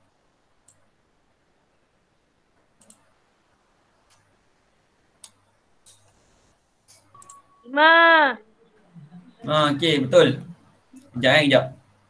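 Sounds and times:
faint hiss: 0.0 - 7.2
computer mouse clicking: 2.8 - 3.1.

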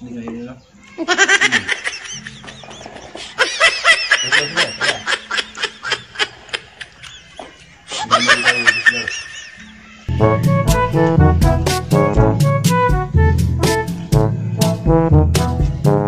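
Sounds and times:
rapid high-pitched laughter: 1.0 - 10.1
background music with bass line: 10.1 - 16.0.

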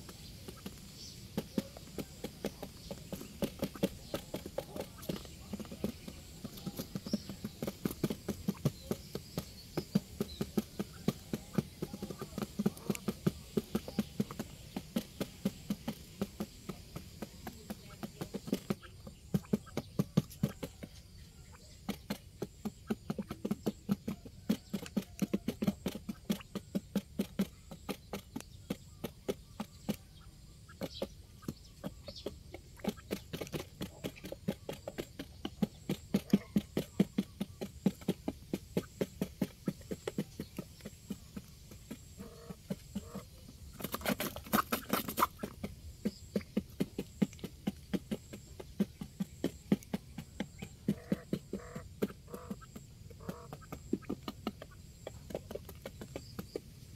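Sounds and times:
beak tapping cardboard: 0.0 - 56.9.

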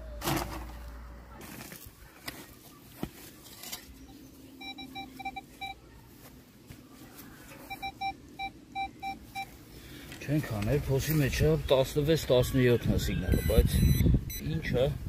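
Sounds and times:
metal detector beeping: 4.0 - 5.8, 7.6 - 9.6, 13.3 - 14.5.

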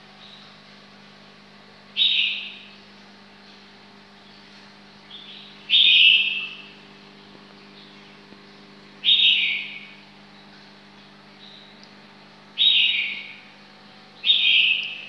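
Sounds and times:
bird calling: 2.0 - 2.8, 5.0 - 6.8, 9.0 - 10.5, 12.6 - 13.6, 14.2 - 15.0.

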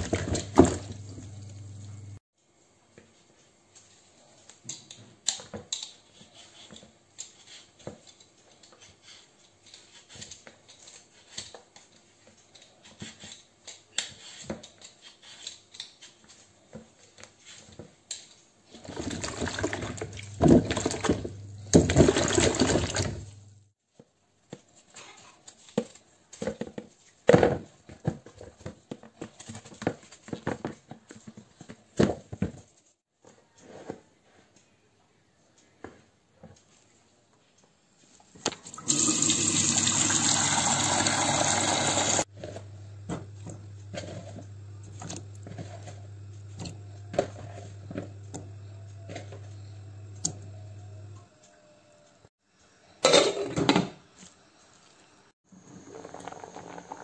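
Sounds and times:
water splashing in a bowl: 18.8 - 23.3.

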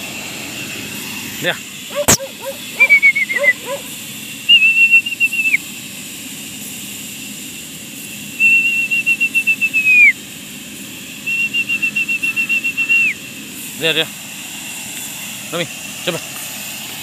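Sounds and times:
high warbling whistle: 1.9 - 3.9.

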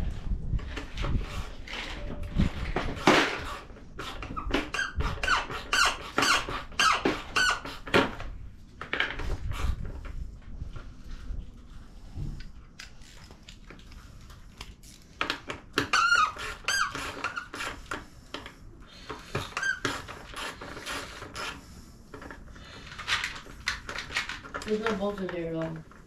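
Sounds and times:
plastic squeaking and creaking: 0.6 - 8.3, 14.6 - 26.0.

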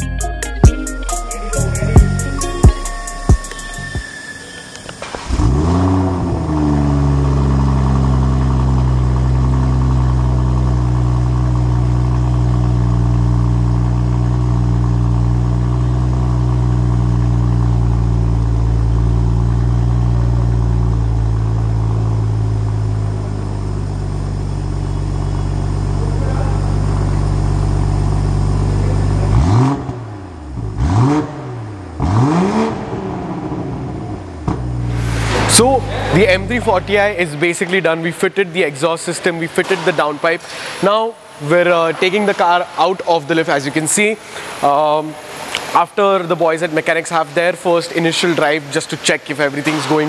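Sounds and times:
car engine idling: 0.0 - 4.1, 4.8 - 37.6
engine revving blips: 1.7 - 10.2, 24.0 - 37.2.

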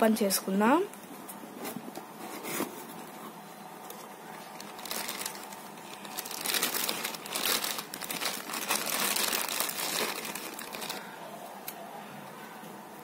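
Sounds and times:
plastic wrap crinkling: 3.8 - 11.1.

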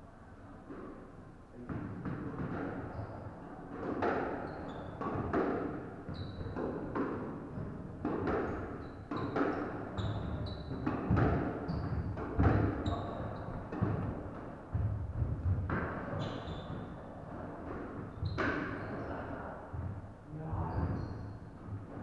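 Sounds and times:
squash ball thwacking walls: 5.0 - 18.8
shoes squeaking on wooden floor: 6.1 - 6.6, 8.5 - 14.1, 16.0 - 17.5, 18.1 - 19.1, 20.6 - 21.4.

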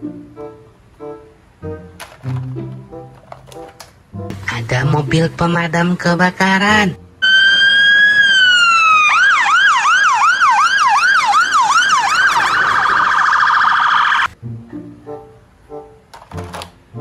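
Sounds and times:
fire engine siren: 7.2 - 14.4.

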